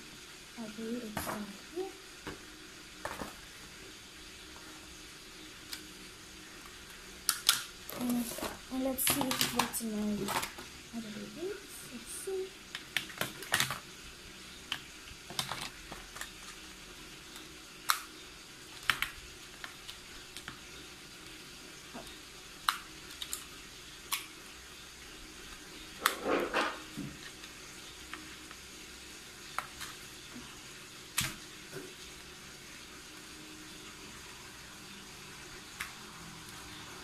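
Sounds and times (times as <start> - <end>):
plastic clattering: 7.4 - 10.7, 26.0 - 27.2
plastic clicks and rattles: 9.0 - 10.6.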